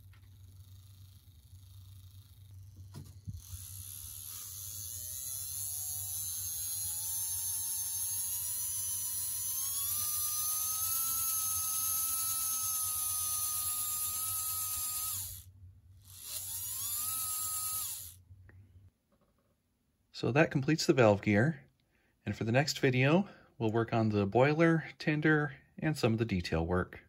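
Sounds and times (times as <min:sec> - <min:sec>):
small electric motor whining: 0:00.0 - 0:18.2.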